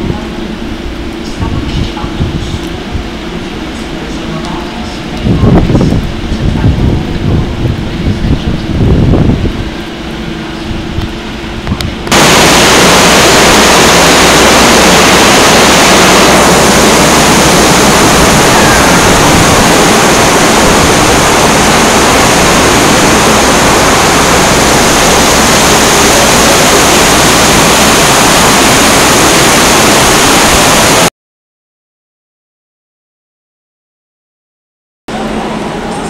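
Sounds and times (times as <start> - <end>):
heavy rain pouring: 12.1 - 31.1.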